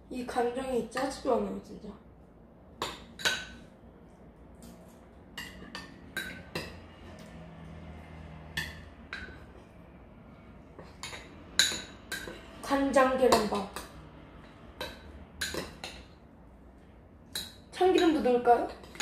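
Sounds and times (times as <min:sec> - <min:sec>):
metal spoons clinking on ceramic bowls: 0:02.8 - 0:03.7, 0:04.6 - 0:07.4, 0:08.5 - 0:09.5, 0:10.8 - 0:16.2, 0:17.3 - 0:19.0.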